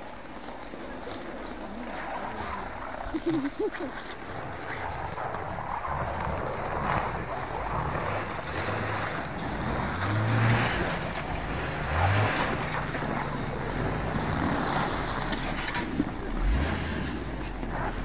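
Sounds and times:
wind buffeting microphone: 0.1 - 18.0
engine revving under load: 1.3 - 18.0.

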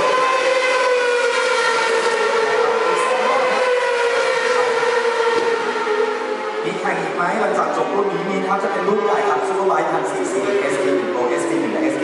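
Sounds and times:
motorcycle engine passing at high revs: 0.0 - 6.7.

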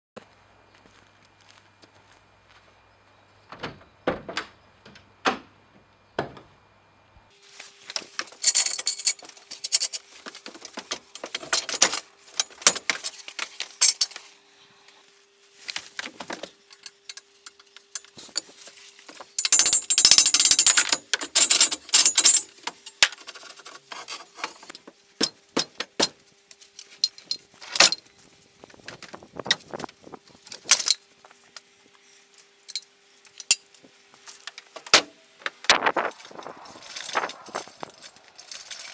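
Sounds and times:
steel parts and chain clanking: 7.9 - 14.2, 16.4 - 24.7, 26.7 - 28.0, 29.8 - 31.0, 32.6 - 33.7, 35.9 - 38.9.

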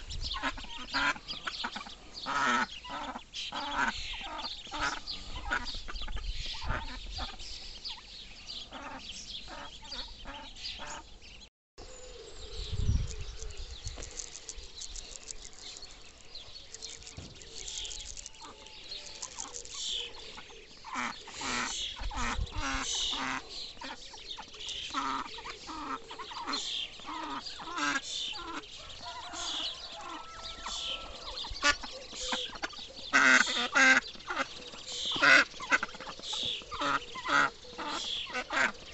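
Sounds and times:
ducks quacking: 0.0 - 7.4, 8.6 - 11.1, 17.8 - 38.9
ducklings peeping: 0.0 - 11.2, 12.6 - 38.9.

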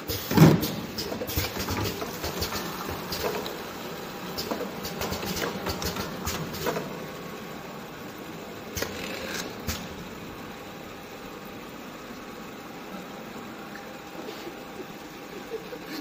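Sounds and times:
machinery hum: 0.0 - 16.0
conveyor clicks and knocks: 4.3 - 7.0.

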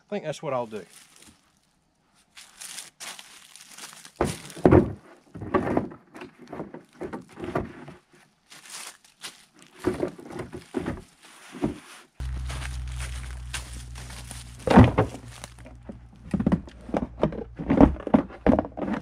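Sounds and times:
plastic thudding and scraping on wood: 4.2 - 7.9, 14.6 - 19.0.

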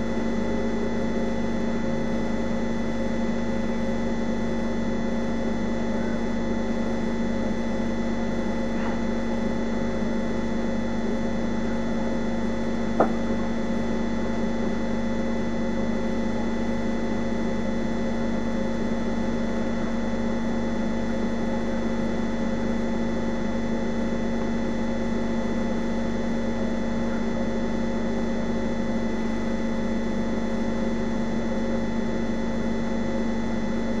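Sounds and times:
machine hum: 3.8 - 17.8.

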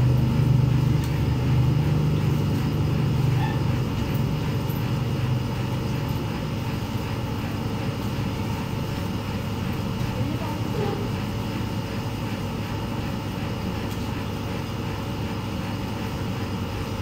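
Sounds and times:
low engine drone: 0.0 - 11.4.

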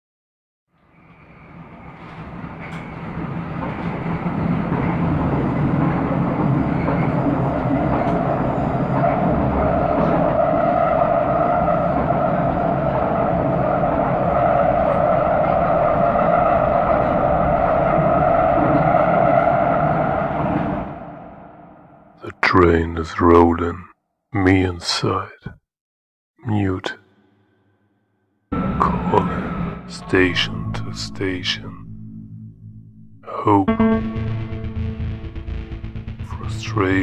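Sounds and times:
underground train rumble: 0.8 - 22.5, 28.5 - 37.0
steady tone: 28.5 - 37.0.

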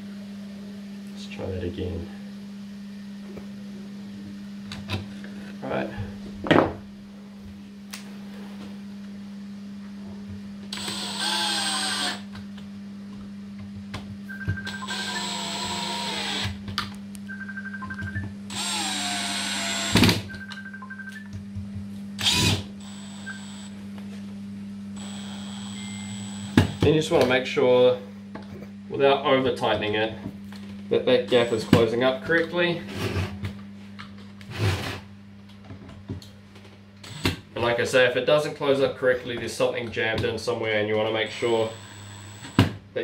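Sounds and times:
steady low hum: 0.0 - 43.0
cordless drill driving screws: 10.7 - 12.2, 14.7 - 16.6, 18.5 - 20.0, 22.2 - 23.7, 25.0 - 26.8, 41.5 - 42.6.

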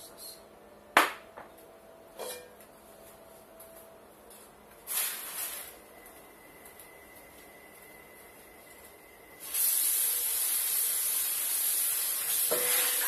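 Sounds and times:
short hiss: 4.9 - 5.8, 9.4 - 13.0.

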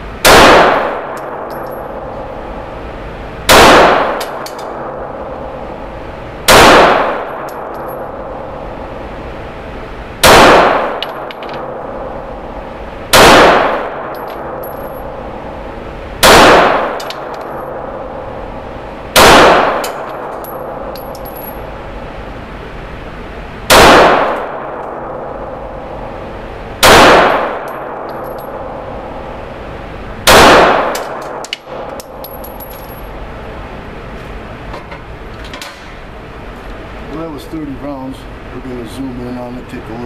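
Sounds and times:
pistol shots echoing: 0.2 - 2.0, 3.5 - 5.4, 6.5 - 8.5, 10.2 - 12.2, 13.1 - 15.0, 16.2 - 18.0, 19.1 - 21.3, 23.7 - 25.2, 26.8 - 28.8, 30.2 - 32.2.

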